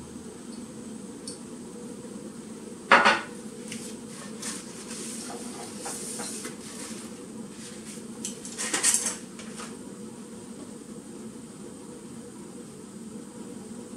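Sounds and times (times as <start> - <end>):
steady low hum: 0.0 - 13.9
paper towel scraping pan: 3.7 - 9.8.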